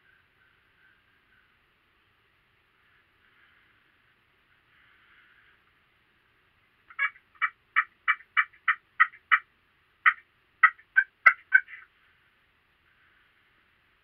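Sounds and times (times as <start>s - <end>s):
turkey call yelps: 6.9s - 11.9s.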